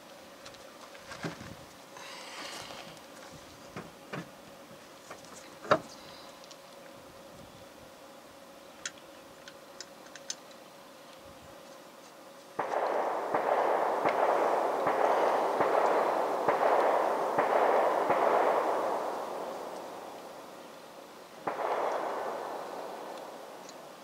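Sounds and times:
faint clicks: 0:08.8 - 0:11.2
distant gunfire: 0:12.6 - 0:20.5, 0:21.4 - 0:23.7.

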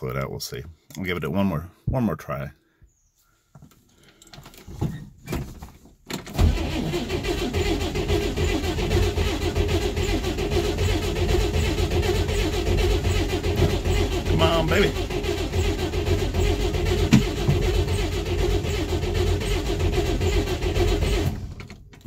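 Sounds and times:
starter motor cranking engine: 0:06.2 - 0:22.0.

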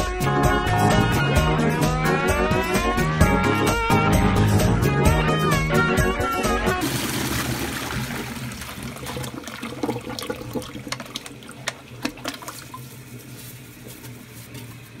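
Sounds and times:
toilet flush water rushing: 0:06.7 - 0:12.9.

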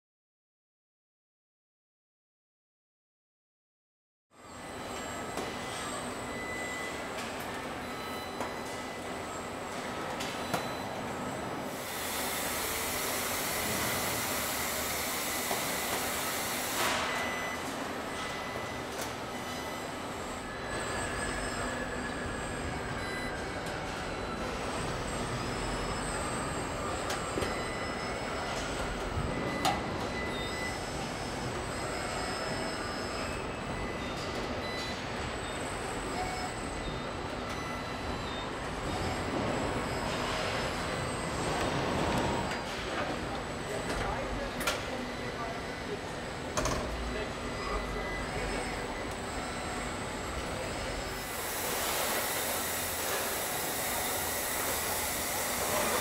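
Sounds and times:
factory background din: 0:04.4 - 0:56.0
machinery hum and air noise: 0:04.4 - 0:56.0
robot arm servo whines: 0:11.7 - 0:42.8, 0:46.6 - 0:56.0.

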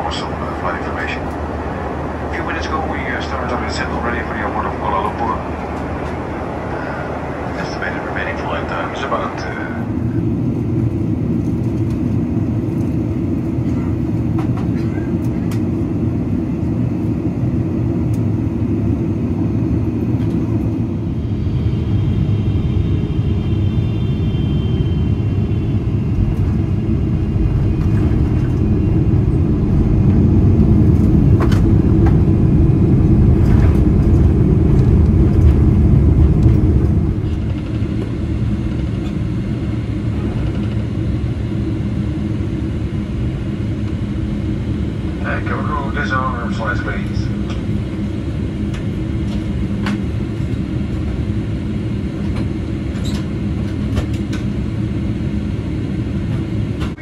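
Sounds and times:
aircraft cabin engine rumble: 0:00.0 - 0:57.0
knocks of aircraft landing: 0:30.9 - 0:32.3.

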